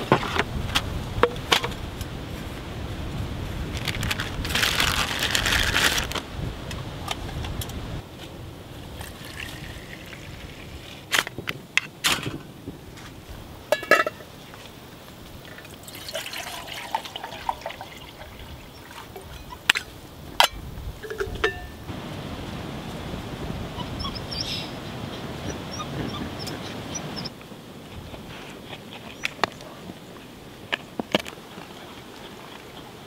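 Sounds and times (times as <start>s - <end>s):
plastic bag rustling: 3.7s - 6.2s
metallic clink: 20.4s - 21.8s.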